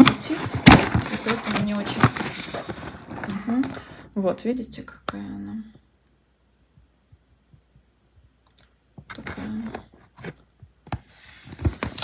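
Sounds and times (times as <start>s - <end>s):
handling noises: 0.0s - 4.1s.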